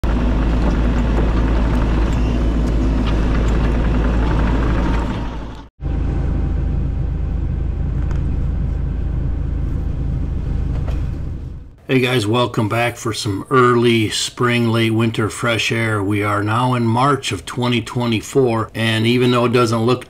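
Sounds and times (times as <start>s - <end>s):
diesel engine running: 0.0s - 11.8s.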